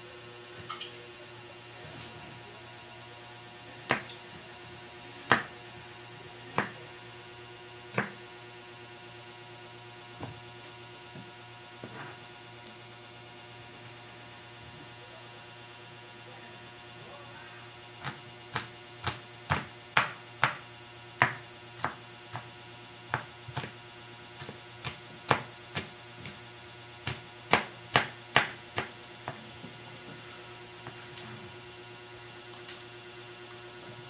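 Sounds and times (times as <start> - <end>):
knife chopping on plastic board: 3.8 - 4.2, 5.2 - 5.5, 6.5 - 6.8, 7.9 - 8.2, 18.0 - 20.6, 21.2 - 22.5, 23.1 - 23.8, 24.4 - 26.4, 27.0 - 29.4.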